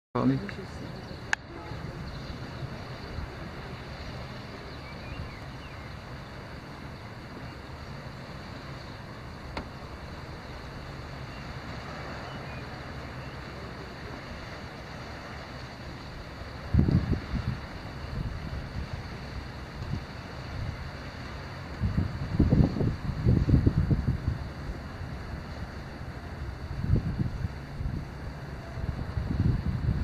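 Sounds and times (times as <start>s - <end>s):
faint click: 9.5s - 9.7s
wind noise on microphone: 14.0s - 30.0s.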